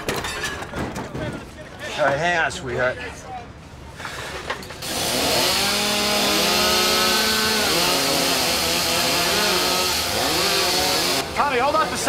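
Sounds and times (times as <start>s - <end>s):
cut-off saw cutting sheet metal: 4.8s - 12.0s.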